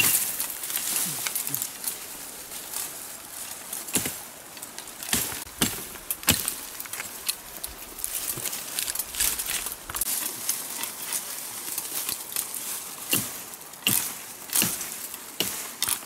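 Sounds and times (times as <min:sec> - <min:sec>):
machete chopping sapling: 0:00.0 - 0:00.9, 0:03.8 - 0:04.3, 0:05.0 - 0:07.2, 0:13.0 - 0:16.0
rustle of leaves and branches: 0:00.0 - 0:16.0.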